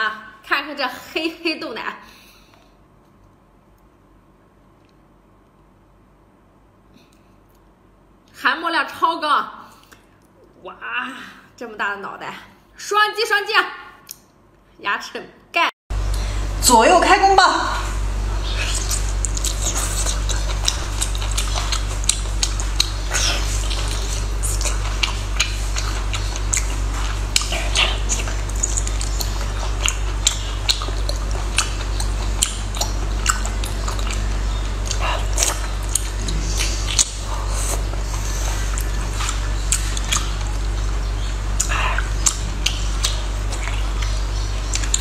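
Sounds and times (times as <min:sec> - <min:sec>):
steady low hum: 0:00.0 - 0:14.8, 0:15.4 - 0:45.0
wet chewing and mouth smacks: 0:18.4 - 0:45.0.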